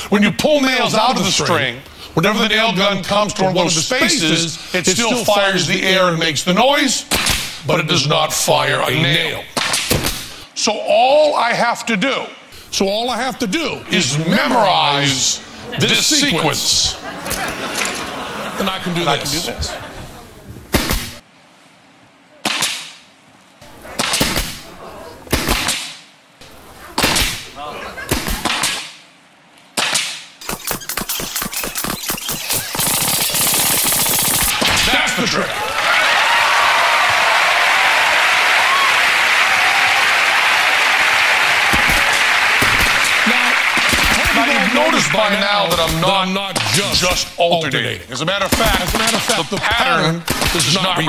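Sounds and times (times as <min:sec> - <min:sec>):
nail gun firing into wood: 0:29.8 - 0:34.8, 0:50.3 - 0:50.7
audience applauding: 0:35.3 - 0:45.8.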